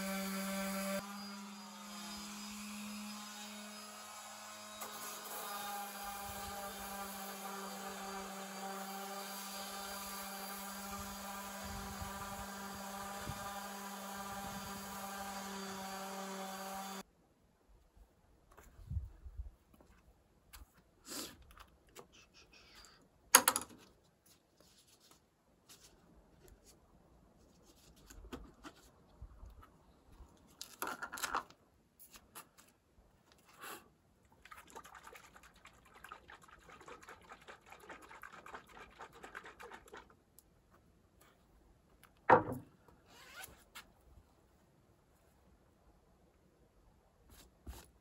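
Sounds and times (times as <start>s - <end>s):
sharp knocks: 42.3s - 42.7s.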